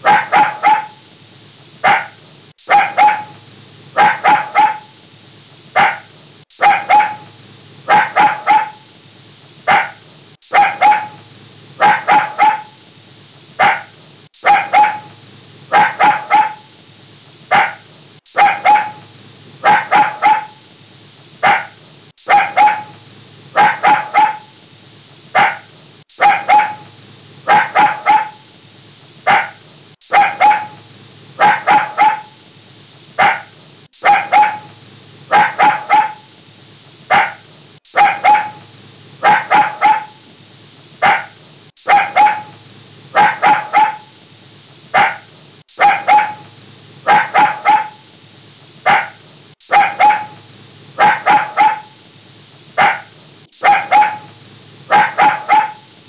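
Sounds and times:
puppy barking in high yaps: 0.0s - 1.0s, 1.8s - 3.4s, 4.0s - 5.0s, 5.8s - 8.8s, 9.7s - 12.8s, 13.6s - 16.7s, 17.5s - 20.6s, 21.4s - 24.6s, 25.4s - 28.5s, 29.3s - 30.8s, 31.4s - 32.4s, 33.2s - 36.3s, 37.1s - 38.6s, 39.2s - 40.2s, 41.0s - 44.1s, 45.0s - 48.1s, 48.8s - 50.4s, 51.0s - 52.0s, 52.8s - 55.9s.

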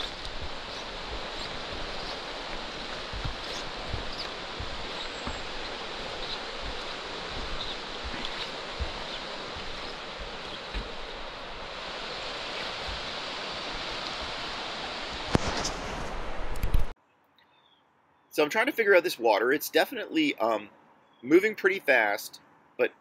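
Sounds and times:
soft low thumps: 0.0s - 11.8s, 12.6s - 14.4s
fast-flowing river rushing: 0.0s - 15.4s.

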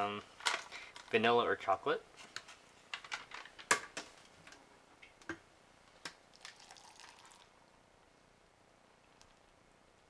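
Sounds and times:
water pouring into cup: 6.3s - 7.6s.

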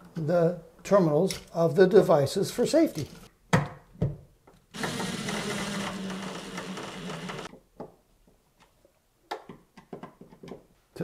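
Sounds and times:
impact driver driving screw: 4.7s - 7.5s.

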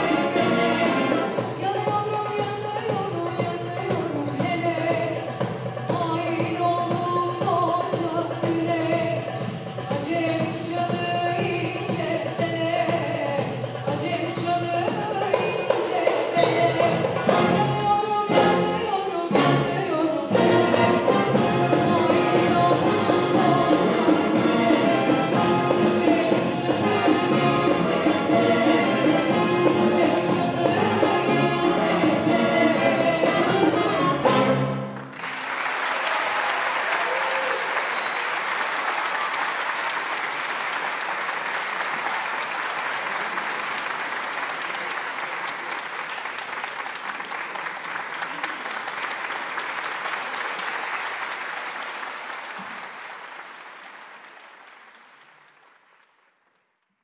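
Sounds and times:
string orchestra playing: 0.0s - 1.8s, 16.4s - 35.1s
audience applauding: 34.9s - 57.0s.

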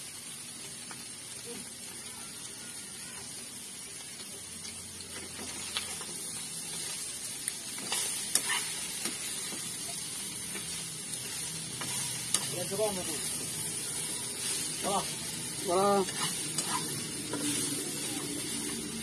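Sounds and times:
food sizzling in a pan: 0.0s - 19.0s
spatula scraping on pan: 7.8s - 19.0s.

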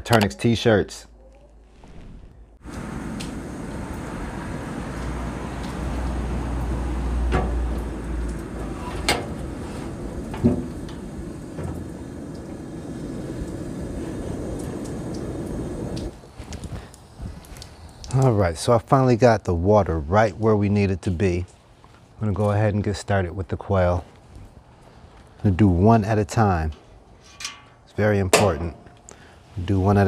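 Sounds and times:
outdoor rushing noise: 1.7s - 16.3s.

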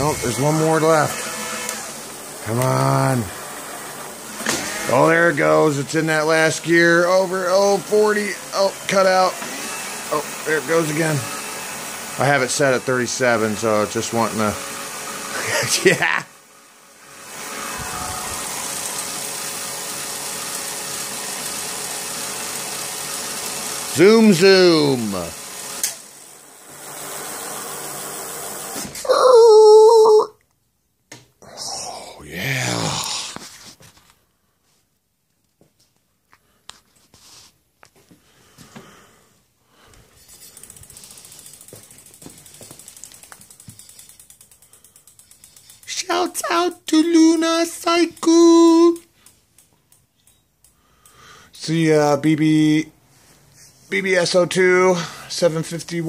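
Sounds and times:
electric bike motor whirring: 0.0s - 29.1s, 39.8s - 51.8s
bicycle hub ratchet clicking: 40.2s - 51.4s.

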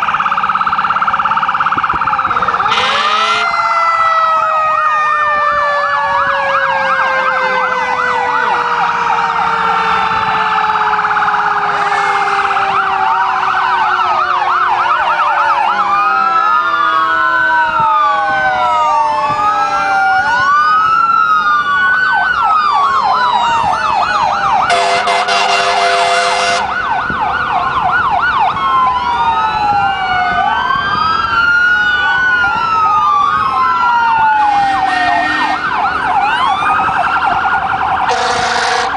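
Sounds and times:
fire truck sirens wailing: 0.0s - 38.9s
horn blast: 24.7s - 26.7s, 34.8s - 35.6s, 38.1s - 38.9s.

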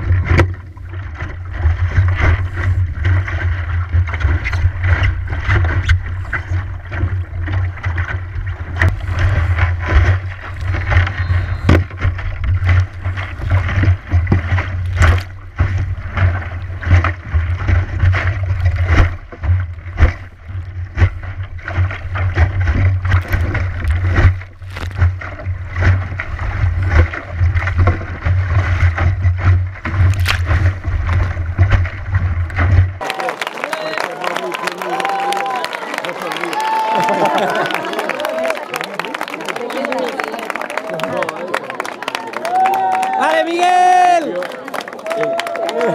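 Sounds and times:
sharp splashes and knocks: 0.0s - 33.4s
water rushing along hull: 0.0s - 45.9s.

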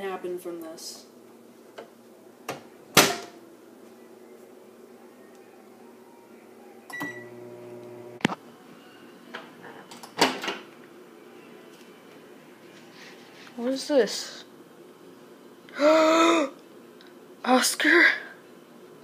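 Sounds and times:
microwave oven hum: 6.4s - 9.0s.

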